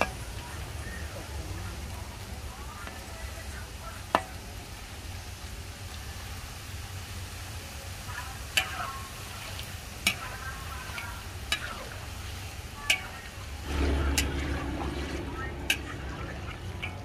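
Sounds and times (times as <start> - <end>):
banana slices sizzling in oil: 0.0 - 17.0
metal skimmer clinking on wok: 10.0 - 11.9, 12.9 - 17.0.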